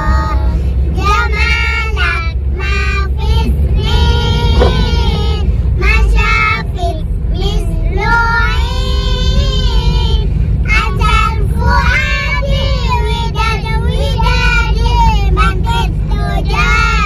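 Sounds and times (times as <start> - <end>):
low vehicle rumble: 0.0 - 17.0.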